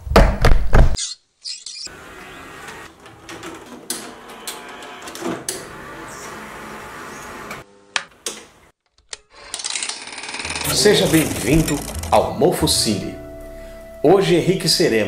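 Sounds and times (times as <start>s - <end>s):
tape mechanism whirring: 9.1s - 12.3s.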